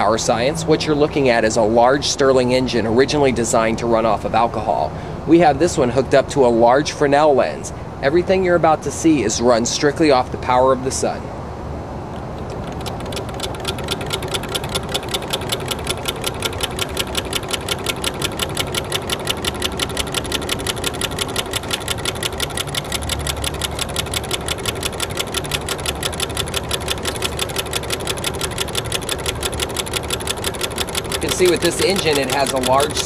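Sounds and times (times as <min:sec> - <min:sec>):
stirling engine clicking: 0:12.0 - 0:33.0.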